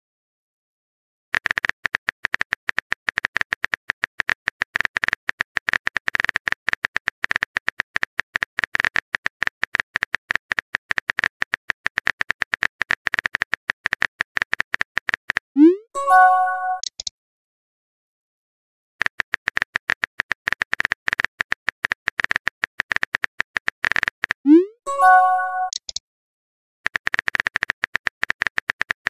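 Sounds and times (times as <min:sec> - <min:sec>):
phone keyboard clicks: 0:01.4 - 0:15.4, 0:16.8 - 0:17.1, 0:19.0 - 0:24.4, 0:25.6 - 0:26.0, 0:26.9 - 0:29.0
short bright chime: 0:16.0 - 0:16.8, 0:24.9 - 0:25.7.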